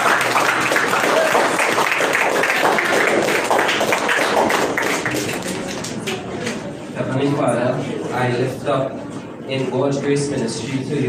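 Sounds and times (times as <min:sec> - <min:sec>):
group clapping: 0:00.0 - 0:06.6.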